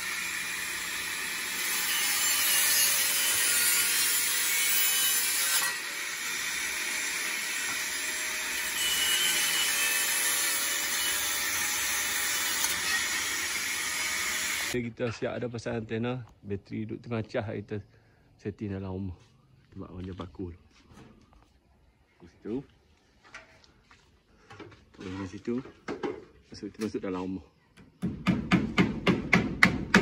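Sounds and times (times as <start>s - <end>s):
angle grinder cutting metal pipe: 0.0s - 14.8s.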